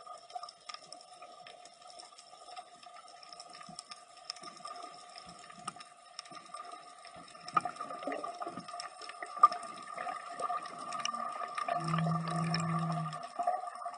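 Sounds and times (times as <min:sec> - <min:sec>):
clicks and crackles: 0:00.0 - 0:13.9
low steady drone: 0:11.8 - 0:13.2.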